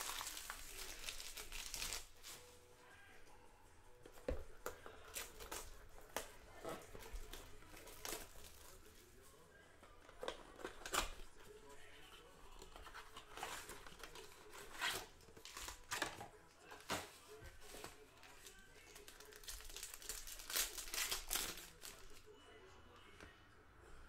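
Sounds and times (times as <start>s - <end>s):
packaging crinkling: 0.0s - 2.5s, 17.7s - 22.3s.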